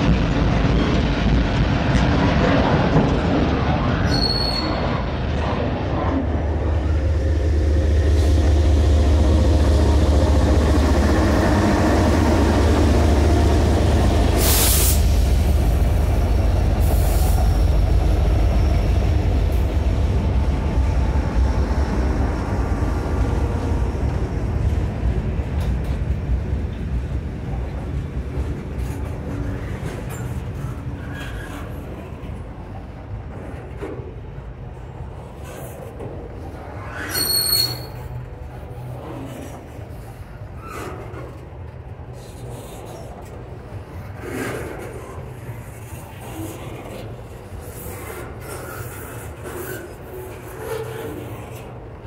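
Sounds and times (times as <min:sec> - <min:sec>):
diesel locomotives rumbling: 0:00.0 - 0:52.0
freight cars rolling: 0:00.0 - 0:52.0.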